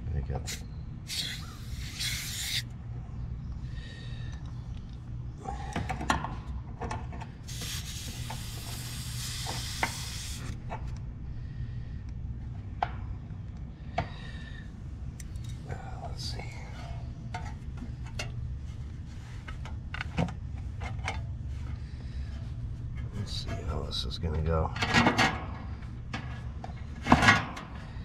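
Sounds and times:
steady low hum: 0.0 - 28.0
hiss: 0.5 - 2.7, 7.5 - 10.6.

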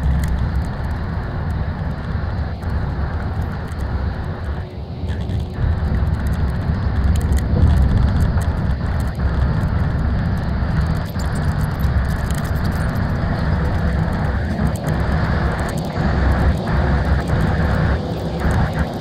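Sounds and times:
coach engine and tyre rumble: 0.0 - 19.0.

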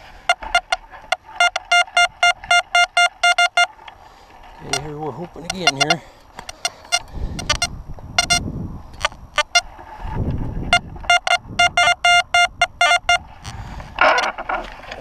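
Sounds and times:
metal detector beeping: 0.2 - 3.8, 4.6 - 8.4, 9.0 - 9.7, 10.7 - 14.3.

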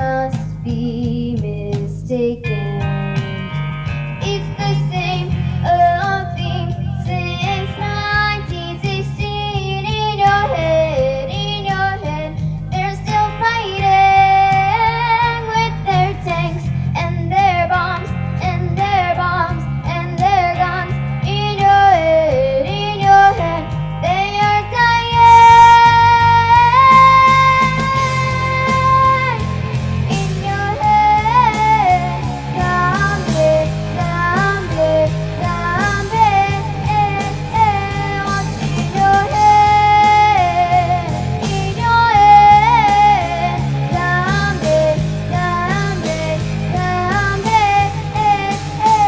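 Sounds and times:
guitar: 0.0 - 49.0
low accompaniment: 0.0 - 49.0
high voice singing: 21.6 - 49.0.

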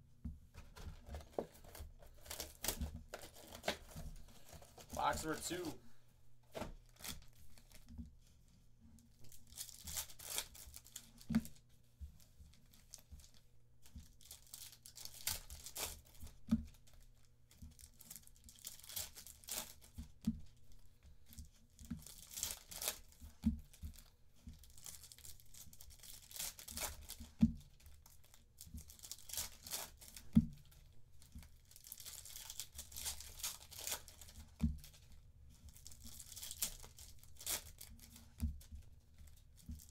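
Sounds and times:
foil packs tearing and crinkling: 1.0 - 5.7, 9.4 - 11.2, 14.2 - 16.2, 17.8 - 19.9, 22.0 - 23.1, 24.6 - 27.3, 28.3 - 30.2, 31.7 - 34.4, 35.8 - 38.2.

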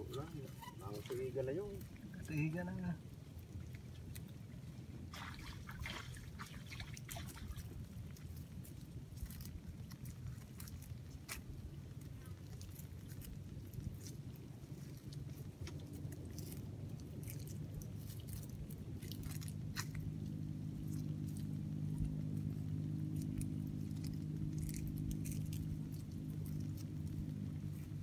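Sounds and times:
low steady hum: 0.0 - 28.0
mud squelching and roots snapping: 0.0 - 28.0
hands digging in wet mud: 5.1 - 28.0.

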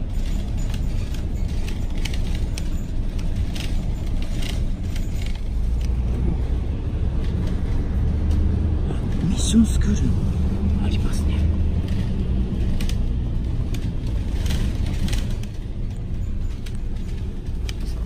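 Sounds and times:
bus engine and road rumble: 0.0 - 18.0
rattling clicks in cabin: 11.8 - 18.0.

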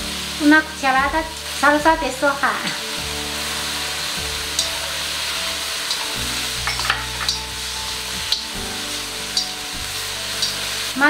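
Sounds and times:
food sizzling in a wok: 0.0 - 11.0
chopsticks clicking against pan: 5.8 - 7.5, 9.3 - 9.6, 10.3 - 10.6.

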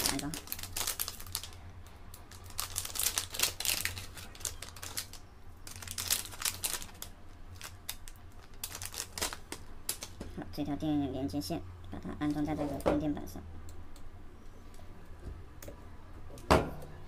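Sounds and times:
plastic bag crinkling: 0.0 - 10.2
low steady hum: 0.0 - 17.0.

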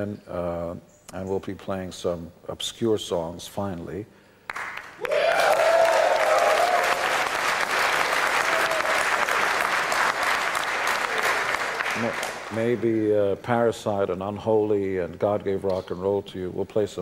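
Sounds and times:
audience applauding and cheering: 4.5 - 12.8
person whooping: 5.0 - 7.2, 8.3 - 9.4.

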